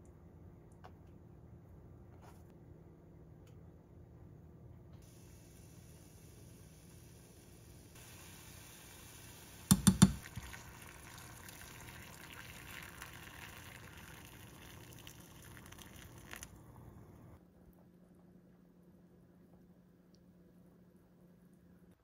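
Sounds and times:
broth pouring into pot: 0:05.1 - 0:16.8
spoon knocking against pot: 0:09.7 - 0:10.3.

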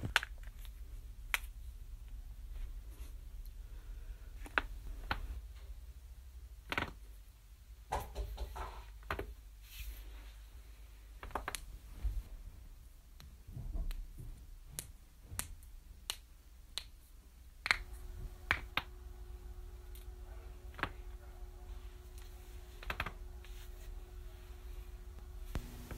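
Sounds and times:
knuckles cracking: 0:17.6 - 0:17.9.

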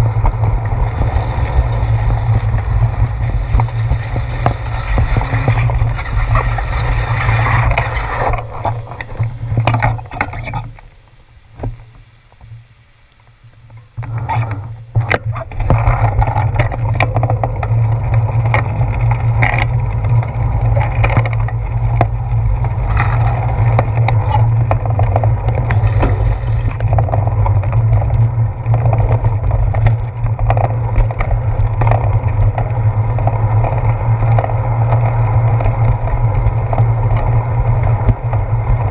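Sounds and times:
wind rushing over microphone: 0:00.0 - 0:10.2
tyre and road rumble: 0:00.0 - 0:38.9
bicycle knocks from bumps: 0:15.1 - 0:38.9.

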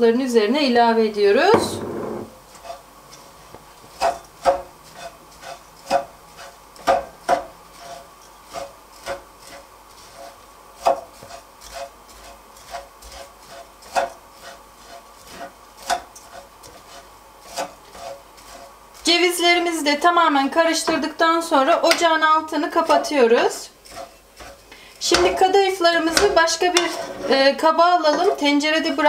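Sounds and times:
spoon knocking against pan: 0:01.5 - 0:02.3
spoon scraping dry food in pan: 0:01.5 - 0:29.0.

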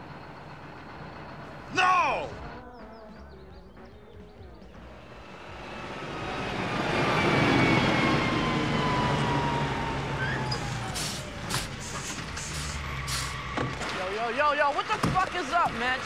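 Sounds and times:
truck engine: 0:00.0 - 0:02.8, 0:04.6 - 0:16.0
brake squeal: 0:06.4 - 0:16.0
short hisses: 0:11.0 - 0:13.4.

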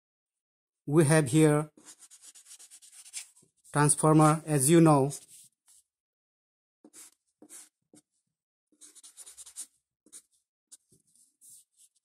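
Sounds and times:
marker scratching on paper: 0:01.7 - 0:04.3, 0:05.1 - 0:05.9, 0:06.8 - 0:12.0.

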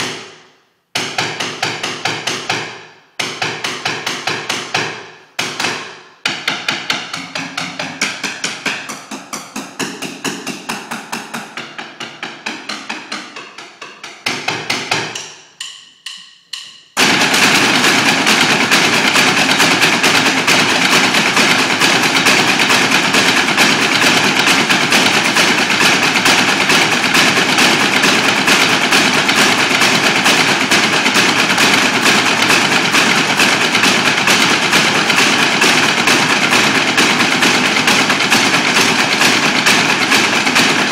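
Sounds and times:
drumsticks striking stone steps: 0:07.0 - 0:17.0.

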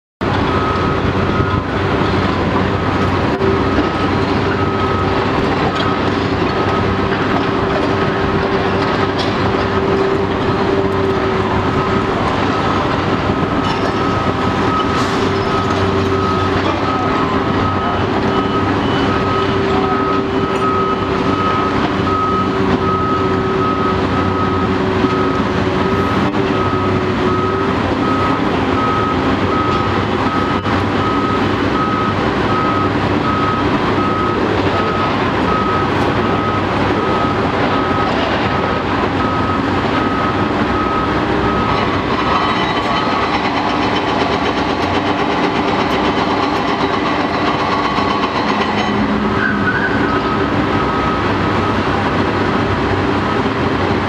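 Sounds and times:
construction machinery drone: 0:00.2 - 0:54.0.

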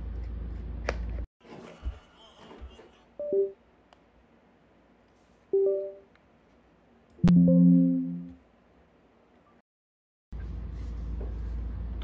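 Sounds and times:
low alert chime with click: 0:07.2 - 0:08.4
two-note rising computer chime: 0:07.2 - 0:08.4.

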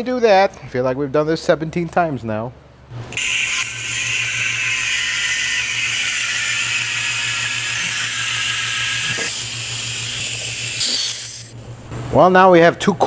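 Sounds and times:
fluid pump hissing and humming: 0:03.1 - 0:11.6.

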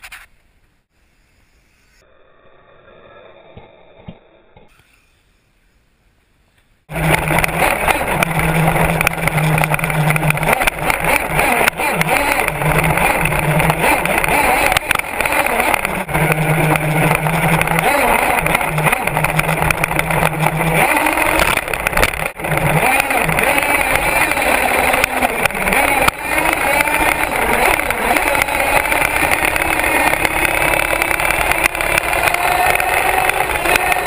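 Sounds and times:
rc truck chassis rattling: 0:06.9 - 0:34.0
rc truck drive note: 0:06.9 - 0:34.0.

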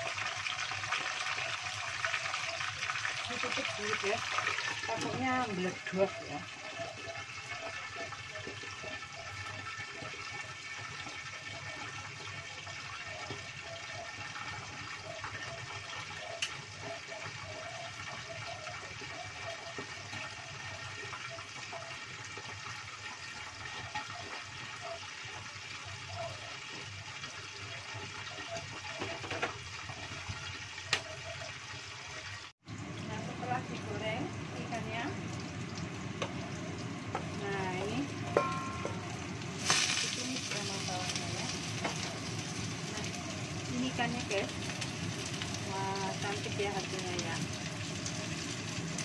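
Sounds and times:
fish sizzling in hot oil: 0:00.0 - 0:49.0.

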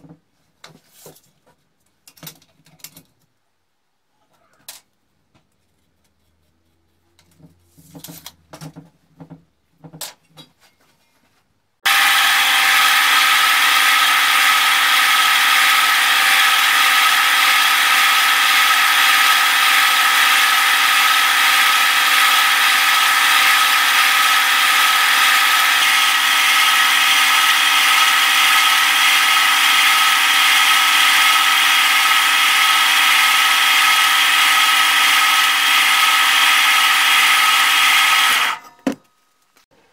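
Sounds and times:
bandsaw cutting steel: 0:11.8 - 0:38.8.

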